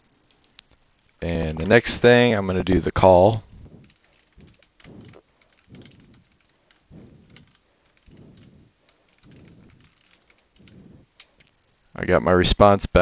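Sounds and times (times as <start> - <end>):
soft low puffs: 3.6 - 11.5
keyboard typing: 3.7 - 11.5.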